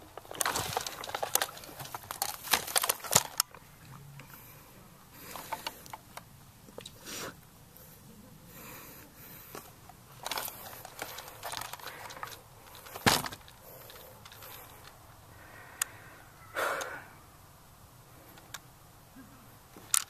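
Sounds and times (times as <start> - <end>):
dry grass rustling and crackling: 0.0 - 4.6, 9.2 - 15.1.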